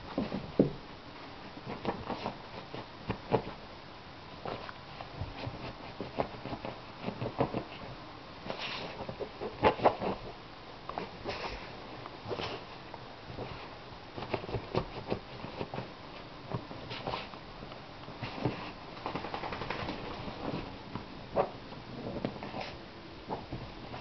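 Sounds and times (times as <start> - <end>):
dog rubbing against fabric: 16.8 - 17.4.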